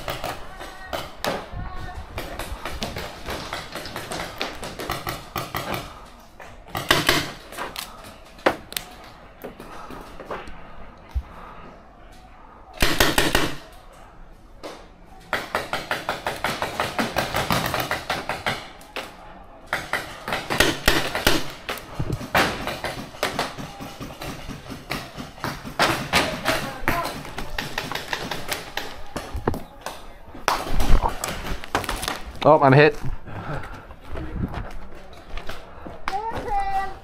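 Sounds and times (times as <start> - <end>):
paintball marker firing: 6.7 - 7.9, 12.8 - 13.7, 19.7 - 29.6.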